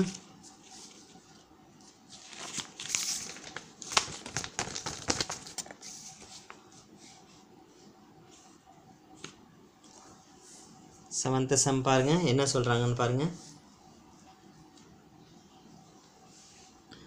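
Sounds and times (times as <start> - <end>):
paper sheets rustling: 0.4 - 7.3.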